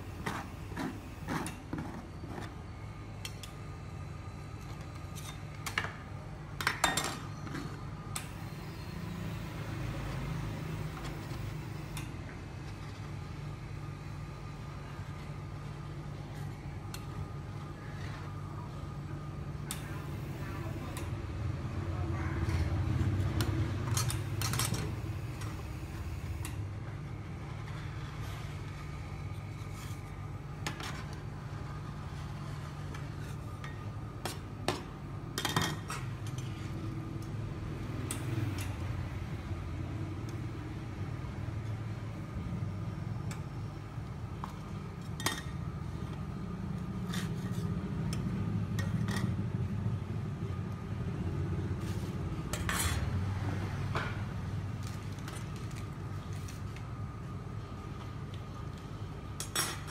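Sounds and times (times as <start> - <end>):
steady low hum: 0.0 - 59.9
metal spatulas scraping steel plate: 52.5 - 53.1.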